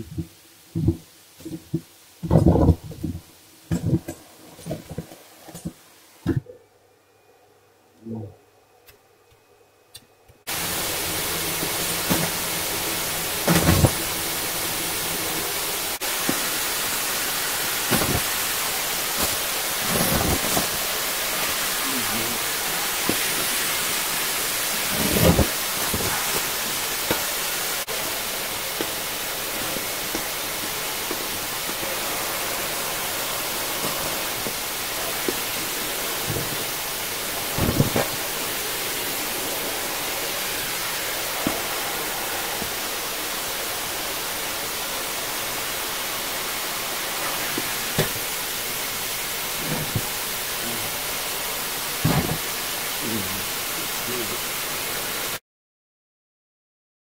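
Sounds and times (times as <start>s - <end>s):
vacuum cleaner running: 10.5s - 55.4s.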